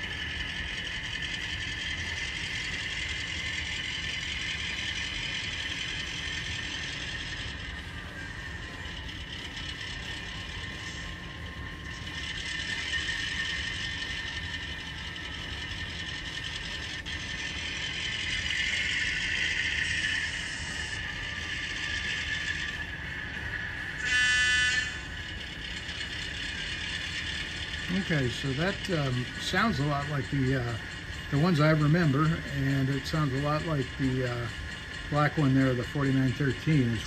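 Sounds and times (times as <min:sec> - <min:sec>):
model locomotive diesel engine sound: 0:00.0 - 0:37.0
train horn blast: 0:24.0 - 0:25.0.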